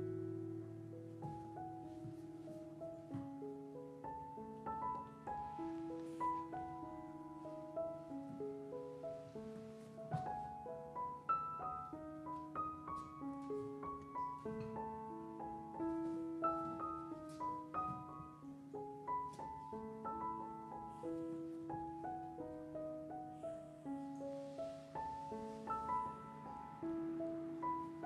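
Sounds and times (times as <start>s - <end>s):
piano music: 0.0s - 28.0s.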